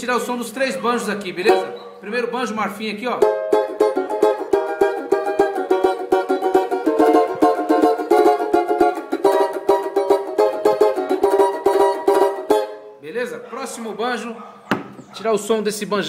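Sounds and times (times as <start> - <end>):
banjo strummed fast: 3.2 - 12.8.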